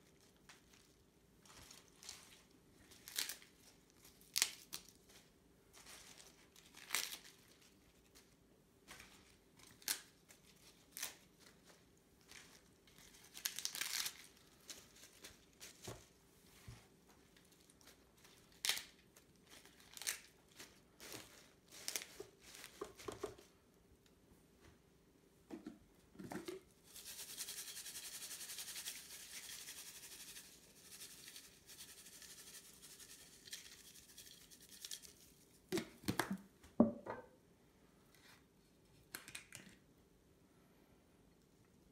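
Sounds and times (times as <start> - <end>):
leaves rustling and crinkling: 0.1 - 8.2, 10.7 - 15.9, 17.4 - 22.9.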